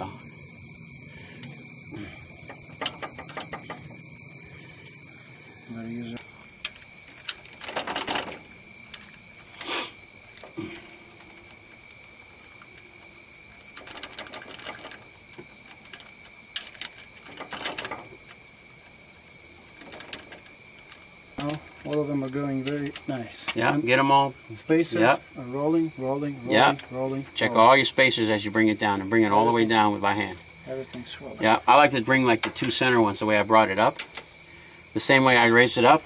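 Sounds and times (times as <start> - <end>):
hand tool clicking on bolts: 12.6 - 18.4.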